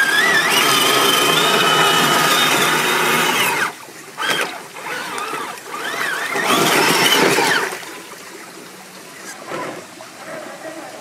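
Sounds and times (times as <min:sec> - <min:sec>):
toy car drivetrain whining: 0:00.0 - 0:07.8
water splashing: 0:00.0 - 0:11.0.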